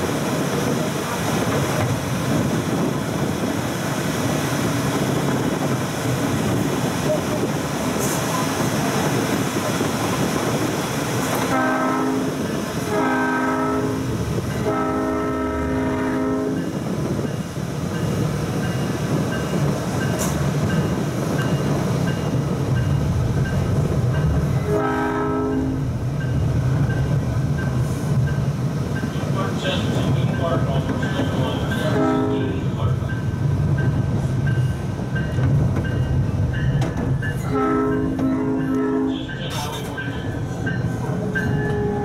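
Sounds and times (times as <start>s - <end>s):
train rumbling on rails: 0.0s - 42.0s
train horn blasts: 11.4s - 16.7s, 24.6s - 25.9s, 31.9s - 32.6s, 37.4s - 39.4s, 41.5s - 42.0s.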